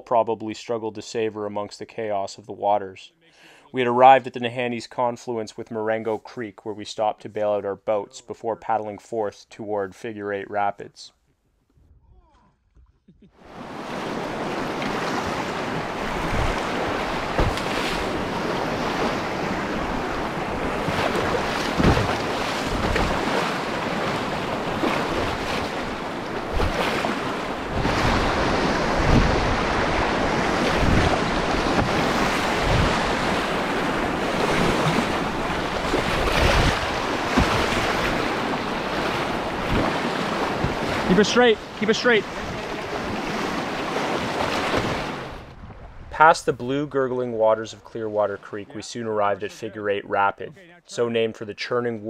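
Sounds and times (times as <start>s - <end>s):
river water rushing and splashing: 13.5s - 46.0s
wind buffeting microphone: 14.2s - 41.1s, 42.3s - 46.6s
low thumps: 16.0s - 41.1s.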